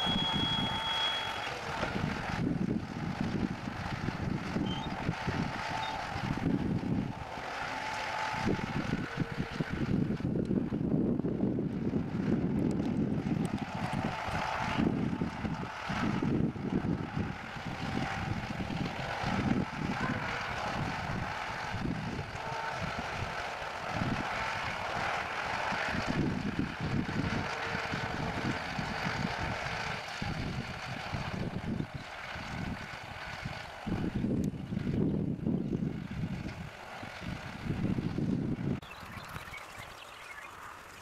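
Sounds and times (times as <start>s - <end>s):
distant engine drone: 0.0s - 41.0s
wind gusting across microphone: 0.0s - 41.0s.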